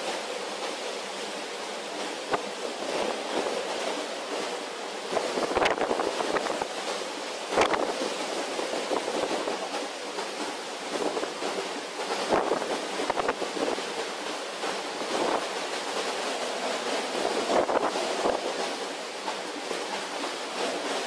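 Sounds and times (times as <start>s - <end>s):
waves breaking and spray: 0.0s - 21.0s
wind buffeting microphone: 5.0s - 6.8s, 7.5s - 9.8s, 10.8s - 14.0s, 17.1s - 19.3s.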